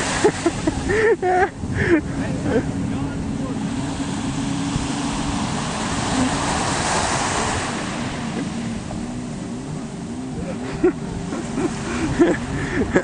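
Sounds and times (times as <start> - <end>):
surf: 0.0 - 13.0
wind on microphone: 0.0 - 13.0.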